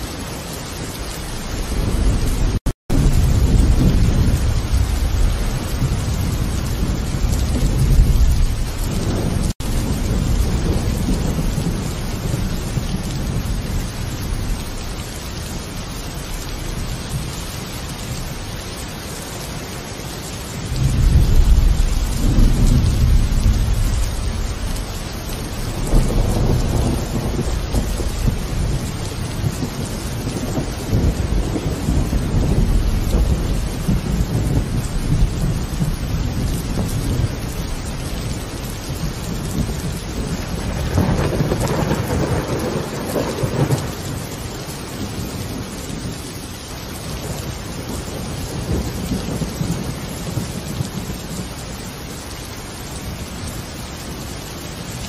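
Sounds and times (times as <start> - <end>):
steady rain: 0.0 - 55.0
thunder rolling: 1.4 - 14.7, 20.7 - 46.2.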